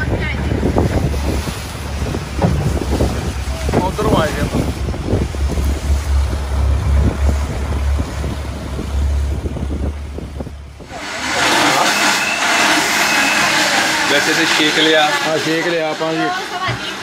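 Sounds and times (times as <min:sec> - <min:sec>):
street ambience with voices: 0:00.0 - 0:08.7, 0:10.6 - 0:17.0
wind buffeting microphone: 0:00.0 - 0:12.6
water rushing past boat: 0:00.0 - 0:17.0.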